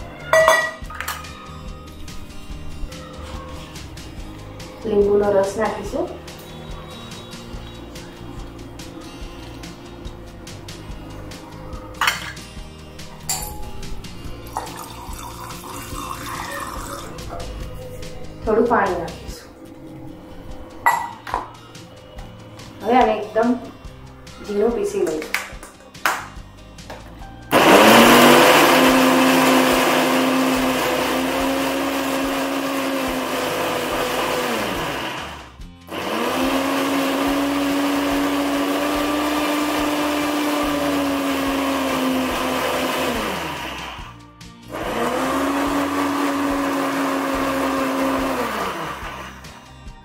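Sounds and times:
mixer grinder motor: 0:27.5 - 0:49.6.

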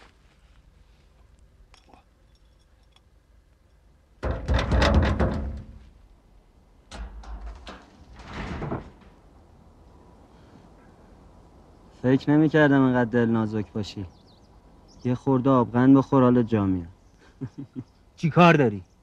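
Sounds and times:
rapid rattling knocks: 0:04.2 - 0:05.8.

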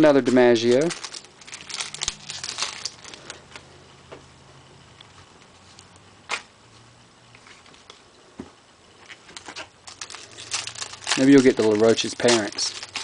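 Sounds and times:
trading cards rustling: 0:00.3 - 0:03.7, 0:09.2 - 0:13.0.

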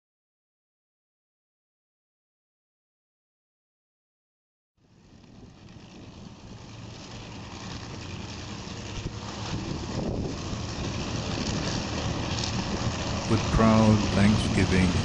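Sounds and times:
multi-engine aircraft drone: 0:04.8 - 0:15.0
wind noise on microphone: 0:05.0 - 0:15.0.

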